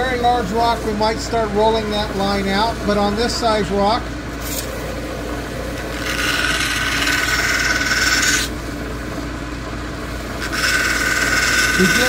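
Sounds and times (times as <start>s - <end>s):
machine motor hum: 0.0s - 12.0s
stone grinding on spinning wheel: 5.5s - 8.6s, 10.3s - 12.0s.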